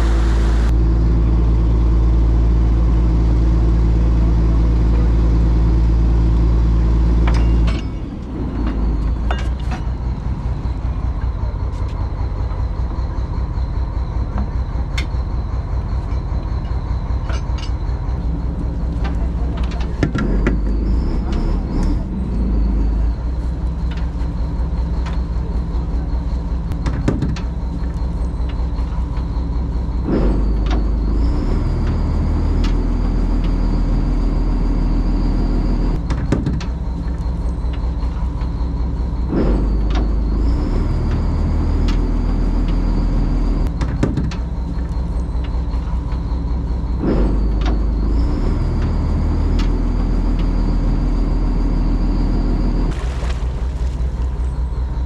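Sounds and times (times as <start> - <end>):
boat engine droning: 0.0 - 55.0
knocks and clatter: 7.1 - 10.8, 18.7 - 22.0, 26.6 - 32.8, 36.0 - 38.6, 43.6 - 49.9.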